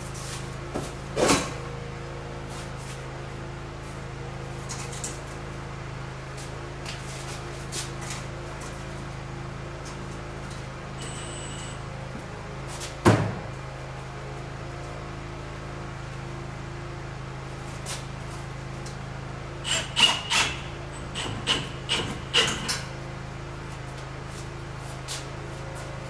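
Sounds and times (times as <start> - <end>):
short high beep: 11.0 - 11.8.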